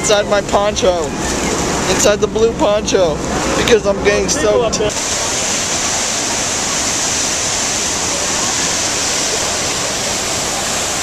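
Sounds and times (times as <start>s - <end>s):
waterfall pounding: 0.0s - 11.0s
hiss of spray: 4.9s - 11.0s.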